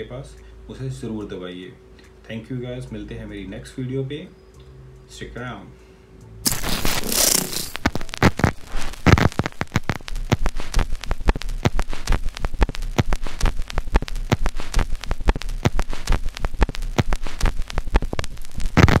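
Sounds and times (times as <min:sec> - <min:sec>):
electronic glitch crackles: 0:06.4 - 0:19.0.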